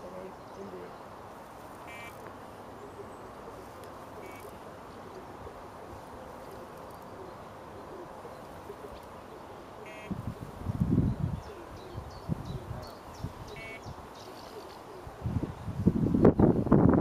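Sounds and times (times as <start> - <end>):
lakeside ambience: 0.0 - 16.9
short high bird calls: 1.7 - 5.2, 6.5 - 10.5, 11.4 - 15.1
wind buffeting microphone: 10.0 - 14.1, 14.9 - 17.0.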